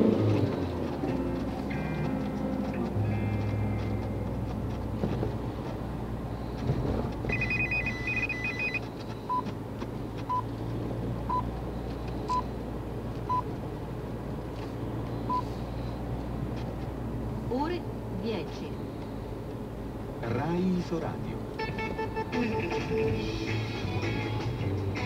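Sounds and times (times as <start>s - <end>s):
car hum: 0.0s - 25.0s
time signal beeps: 7.3s - 9.5s.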